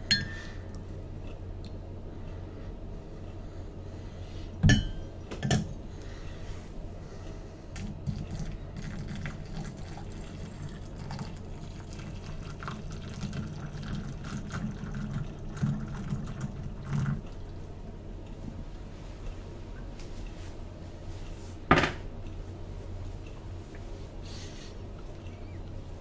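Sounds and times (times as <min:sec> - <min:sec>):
water pouring into teapot: 0:08.1 - 0:17.3.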